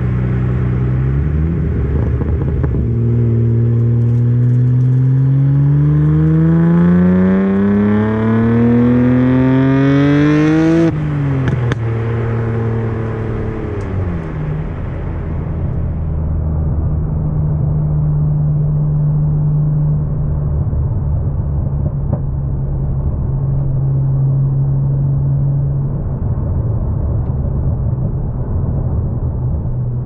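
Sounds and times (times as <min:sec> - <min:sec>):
car engine droning: 0:00.0 - 0:30.0.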